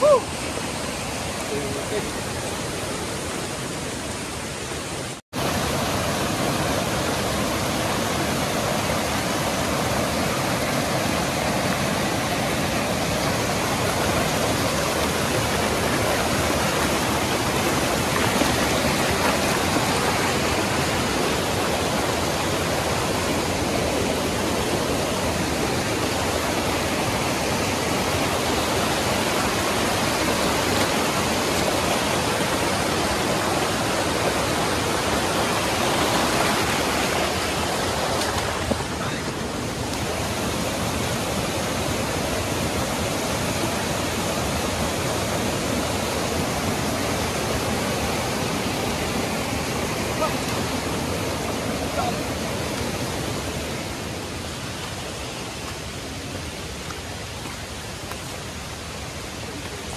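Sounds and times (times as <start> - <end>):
water rushing: 0.0 - 59.9.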